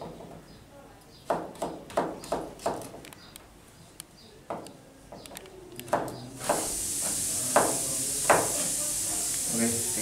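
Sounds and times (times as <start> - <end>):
steady high hiss: 6.4 - 10.0.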